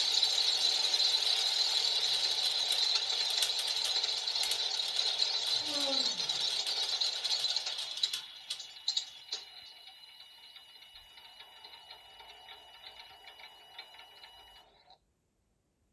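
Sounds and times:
small electric motors whirring: 0:00.0 - 0:10.0.

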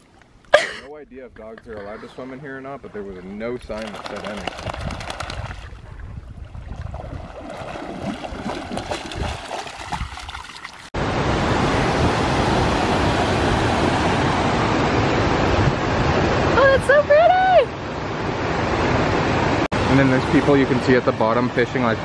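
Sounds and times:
dog splashing through water: 0:03.6 - 0:05.8, 0:06.6 - 0:10.9.

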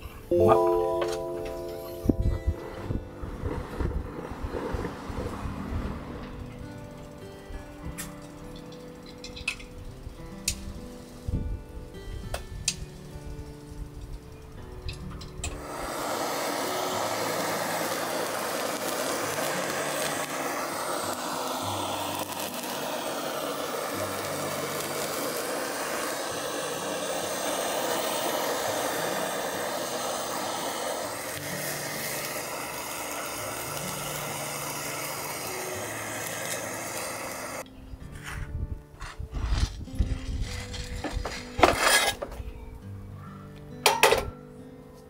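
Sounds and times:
soft background music: 0:00.0 - 0:45.0
gas torch flame hissing: 0:02.5 - 0:42.4.

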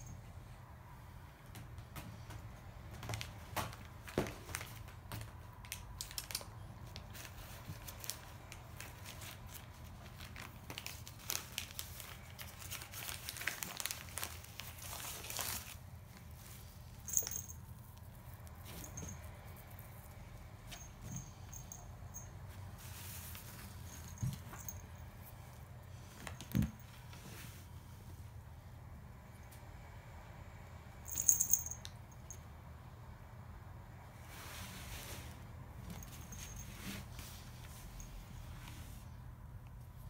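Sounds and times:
cat scratching and crinkling on rug: 0:01.9 - 0:24.8.

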